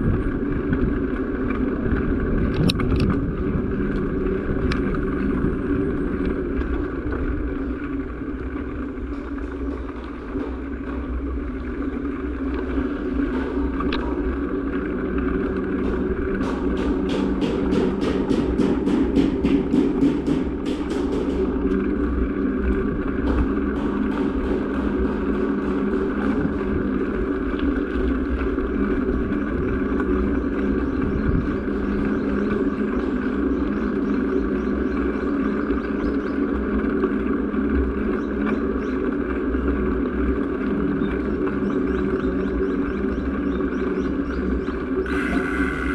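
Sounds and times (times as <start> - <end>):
wind noise: 0.0 - 36.7
road noise rumble: 0.0 - 45.9
small motorcycle engine running: 0.0 - 45.9.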